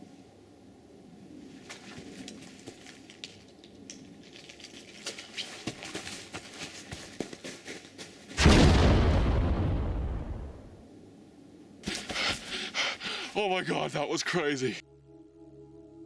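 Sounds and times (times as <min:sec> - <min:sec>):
light clicks and crackles: 0:01.6 - 0:06.0
rumbling explosion: 0:08.4 - 0:10.8.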